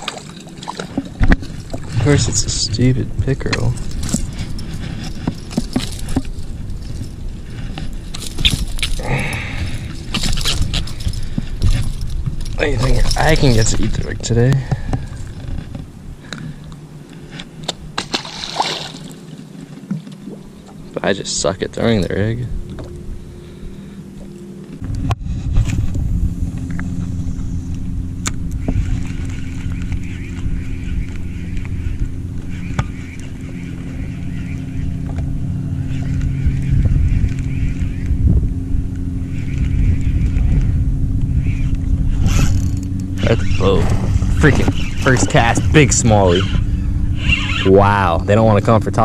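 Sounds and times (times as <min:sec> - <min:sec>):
wind buffeting microphone: 0:00.0 - 0:19.2, 0:24.8 - 0:49.0
low motor hum: 0:00.0 - 0:49.0
fishing reel cranking: 0:41.6 - 0:48.4.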